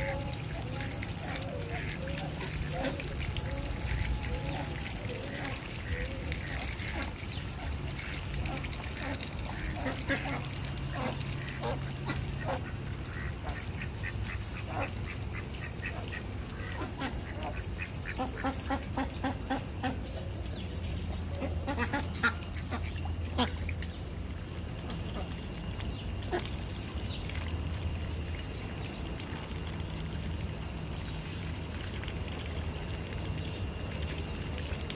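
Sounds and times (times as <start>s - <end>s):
ducks quacking: 0.0s - 20.1s, 21.2s - 23.6s.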